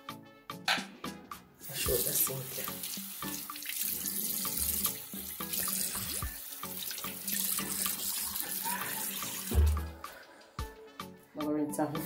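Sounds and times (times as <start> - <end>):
tap water running into sink: 1.6 - 10.0
water splashing: 1.8 - 10.0.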